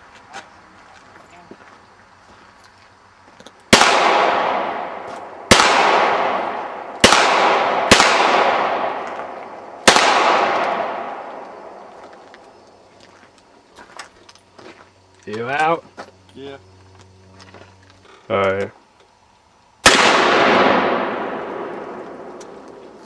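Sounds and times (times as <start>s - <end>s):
handgun shots with echo: 3.7s - 11.6s, 19.9s - 22.9s.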